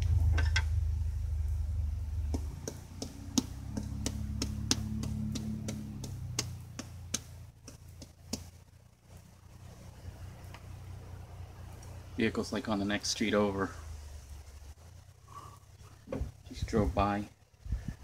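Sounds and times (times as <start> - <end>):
distant vehicle engine hum: 0.0 - 18.0
knife slicing fruit: 2.3 - 8.5.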